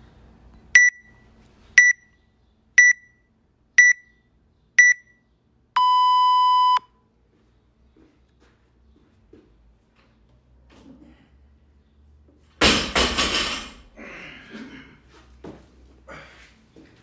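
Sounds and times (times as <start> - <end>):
long lower beep: 0.8 - 1.2, 3.8 - 4.2, 4.8 - 5.2, 5.8 - 6.9
short high beeps: 5.8 - 6.9.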